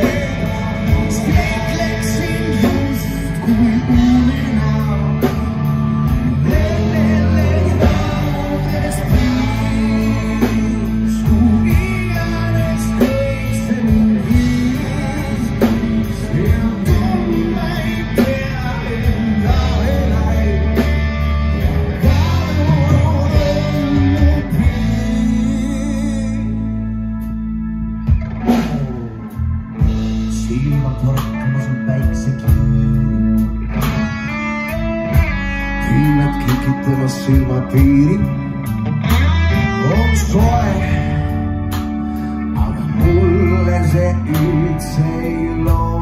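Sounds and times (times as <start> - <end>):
drum kit beat: 0.0 - 25.4, 28.1 - 33.1
bass guitar: 0.0 - 46.0
electric guitar: 0.0 - 46.0.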